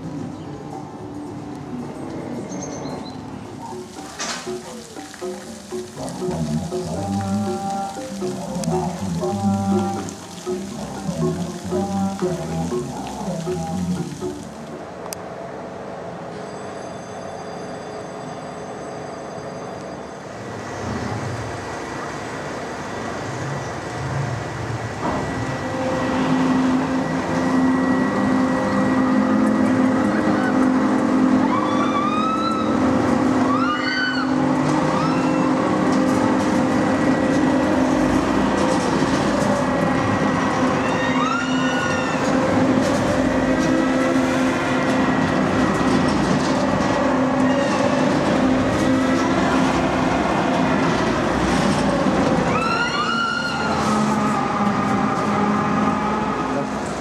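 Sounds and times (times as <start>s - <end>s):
riders screaming: 31.4s - 35.7s, 40.7s - 42.4s, 52.4s - 56.4s.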